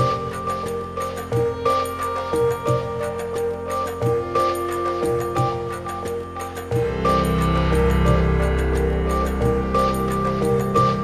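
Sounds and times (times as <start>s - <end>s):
calm new-age instrumental music: 0.0s - 11.0s.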